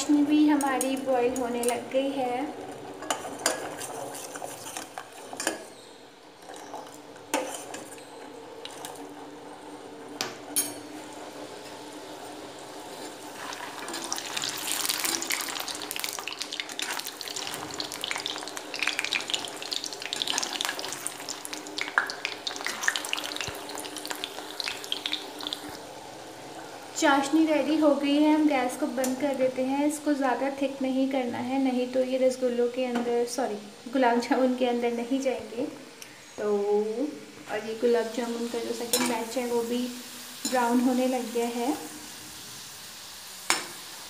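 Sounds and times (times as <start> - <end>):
food deep-frying in hot oil: 0.0 - 44.0
spoon stirring in metal pan: 2.9 - 9.0
metal spatula in pan: 3.0 - 9.0, 38.6 - 39.5, 40.3 - 41.0.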